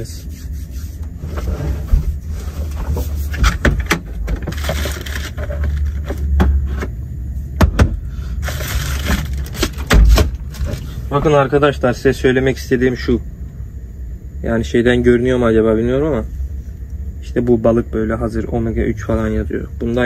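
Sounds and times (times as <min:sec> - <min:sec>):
steady low hum: 0:00.0 - 0:20.0
items rummaged in storage locker: 0:01.2 - 0:07.0, 0:08.4 - 0:11.3.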